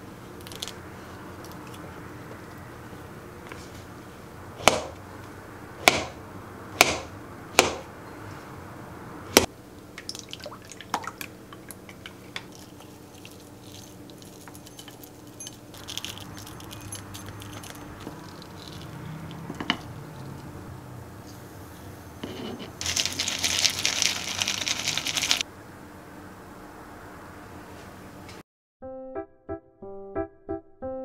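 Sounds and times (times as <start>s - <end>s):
spoon scooping muesli: 11.6s - 20.5s.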